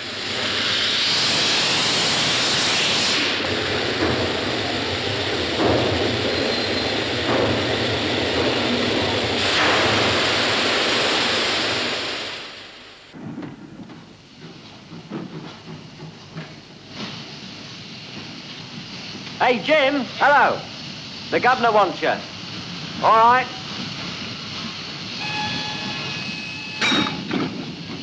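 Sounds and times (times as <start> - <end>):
steam hissing: 0.0 - 28.0
knocks and clanks: 5.5 - 6.3, 13.2 - 17.2, 26.8 - 28.0.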